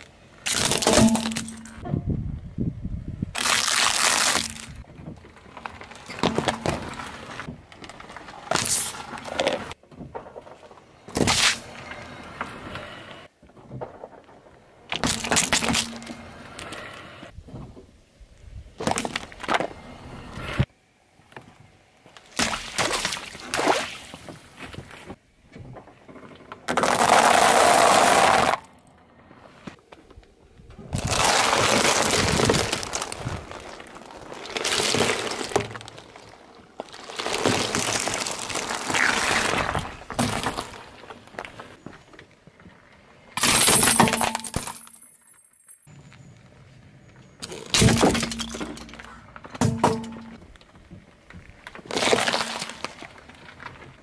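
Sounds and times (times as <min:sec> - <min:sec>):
objects crushed under car tyre: 0:00.4 - 0:01.8, 0:13.6 - 0:16.9, 0:18.8 - 0:19.8, 0:26.6 - 0:28.6, 0:30.9 - 0:41.8, 0:47.4 - 0:50.6, 0:51.3 - 0:54.0
eggs cracking under tyre: 0:30.9 - 0:41.8, 0:50.4 - 0:54.0.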